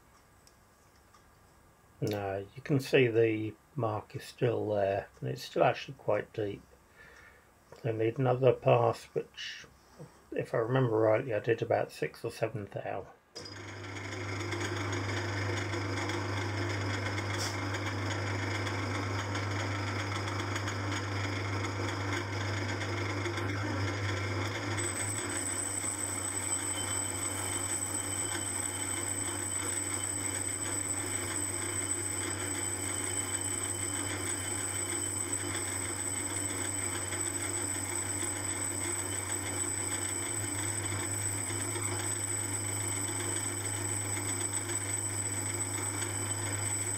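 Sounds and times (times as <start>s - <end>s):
metal lathe humming: 13.4s - 46.9s
thin high whine: 13.4s - 46.9s.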